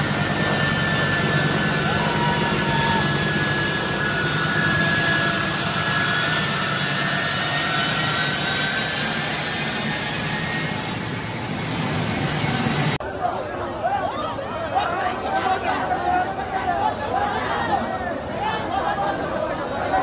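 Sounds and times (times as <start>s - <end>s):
jet engines rushing and whining: 0.0s - 13.0s.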